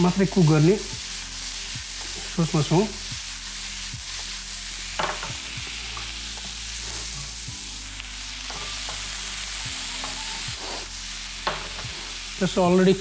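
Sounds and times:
vegetables sizzling in a pan: 0.0s - 13.0s
utensil knocking against pan: 5.0s - 5.4s.

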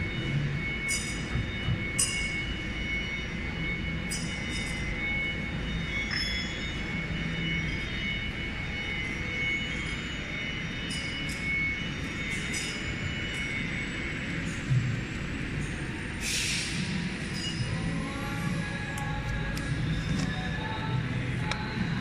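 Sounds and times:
router spindle whine: 0.0s - 16.2s.

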